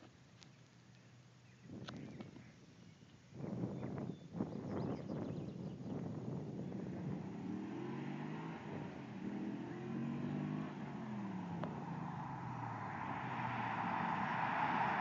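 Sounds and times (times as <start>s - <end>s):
car engine accelerating: 6.4s - 15.0s.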